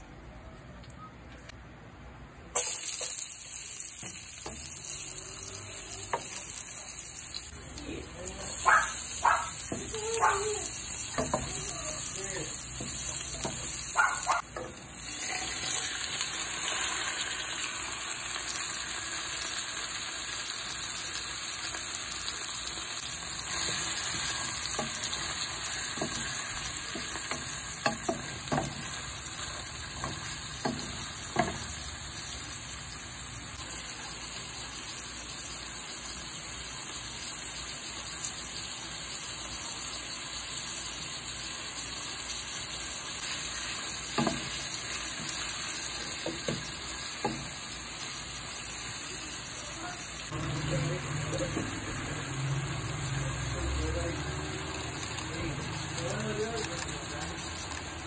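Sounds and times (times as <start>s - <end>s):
garlic sizzling in hot oil: 2.6s - 58.0s
spatula stirring in pan: 8.5s - 15.9s, 23.0s - 32.5s, 34.7s - 49.1s.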